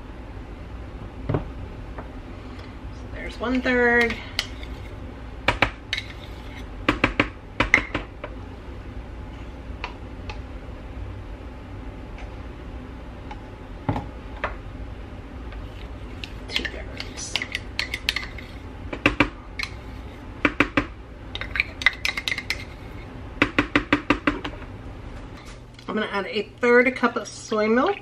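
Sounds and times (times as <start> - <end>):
metal utensil scraping a cup: 4.3 - 5.0, 5.9 - 6.7, 15.6 - 18.7, 19.6 - 20.2, 21.4 - 23.1
utensil clinking against bowl: 16.2 - 18.5.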